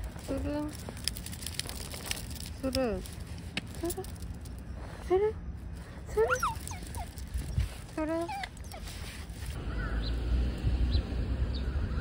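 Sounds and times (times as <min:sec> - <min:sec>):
dog whining and yipping: 0:06.1 - 0:09.3.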